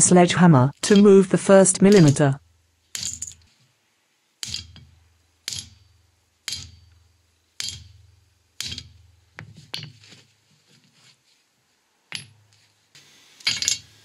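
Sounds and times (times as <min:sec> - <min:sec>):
sledgehammer striking metal bearing: 0:04.4 - 0:09.9.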